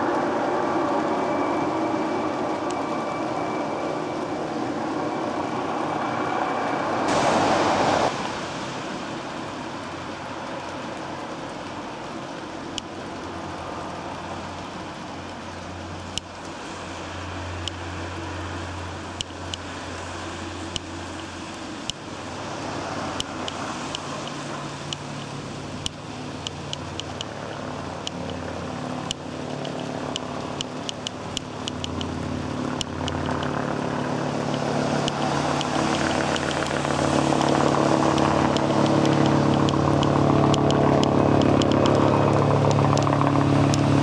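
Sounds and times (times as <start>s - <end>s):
faint high whine: 0.0s - 8.7s
loud rush of noise: 0.0s - 15.2s, 15.8s - 44.0s
helicopter rotor drone: 0.0s - 44.0s
sharp clicks: 29.1s - 32.2s, 32.8s - 33.6s, 37.4s - 43.9s.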